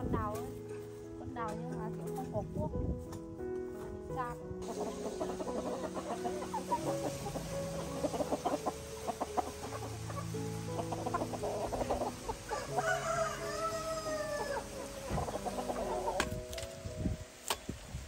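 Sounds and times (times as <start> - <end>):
hens clucking: 4.6 - 16.7
rooster crowing: 12.5 - 15.1.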